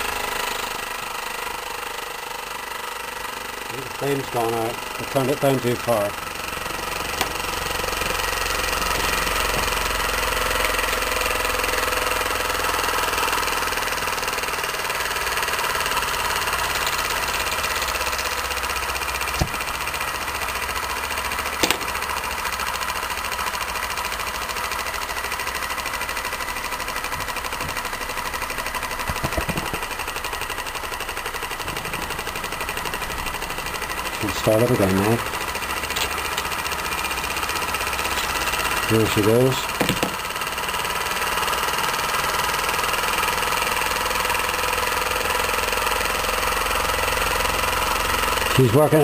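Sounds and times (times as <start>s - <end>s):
small engine running down: 0.0s - 49.0s
sharp clicks: 21.6s - 22.2s.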